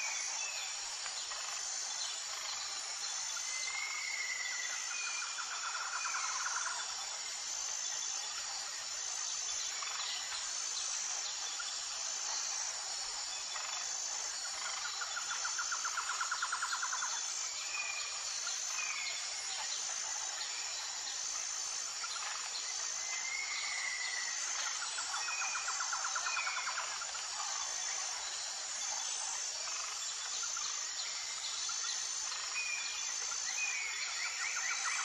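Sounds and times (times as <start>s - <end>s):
insects trilling: 0.0s - 35.0s.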